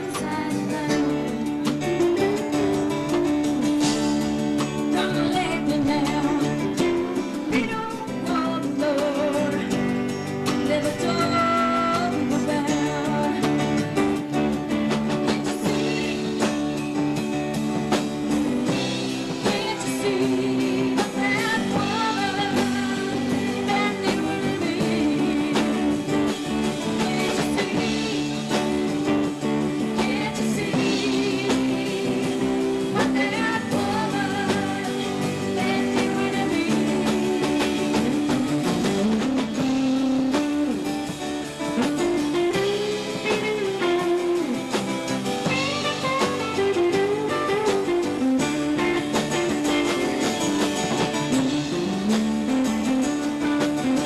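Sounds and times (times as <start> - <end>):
person singing: 0.0 - 14.3, 18.6 - 41.0, 41.7 - 44.8
live rock band playing: 0.0 - 54.0.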